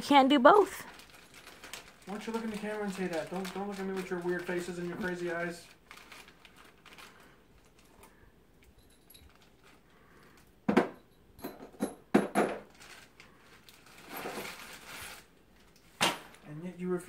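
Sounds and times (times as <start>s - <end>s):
small metal parts clinking: 7.9s - 9.8s.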